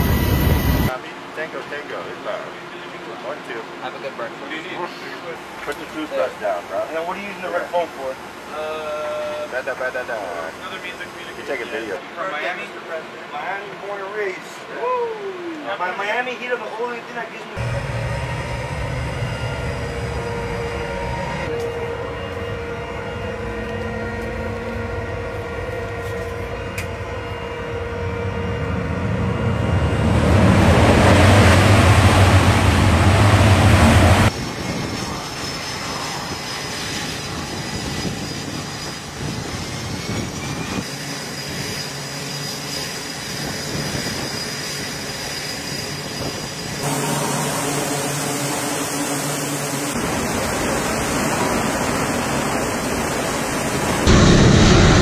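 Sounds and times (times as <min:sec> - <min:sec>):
faint high whine: 0:00.0 - 0:01.0, 0:17.6 - 0:30.0, 0:35.0 - 0:55.0
jet aircraft engine noise: 0:00.0 - 0:08.5, 0:17.6 - 0:55.0.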